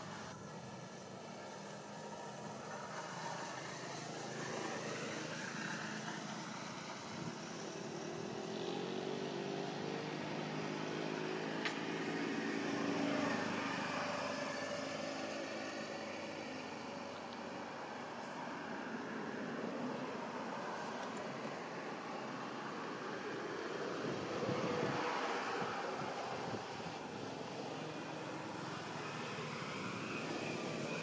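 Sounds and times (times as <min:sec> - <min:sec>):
steady background hiss: 0:00.0 - 0:31.0.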